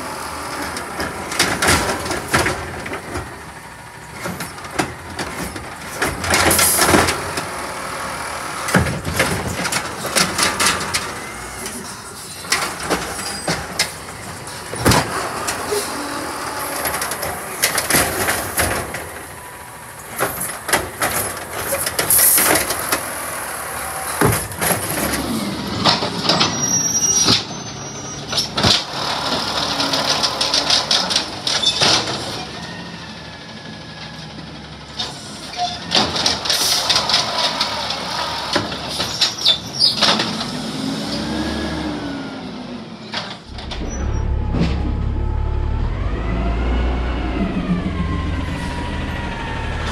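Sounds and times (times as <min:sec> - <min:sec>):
garbage truck engine revving: 0:00.0 - 0:26.9, 0:28.4 - 0:32.3, 0:36.0 - 0:49.9
bins clanking and banging: 0:00.6 - 0:07.5, 0:08.7 - 0:16.0, 0:16.6 - 0:19.5, 0:24.1 - 0:26.6.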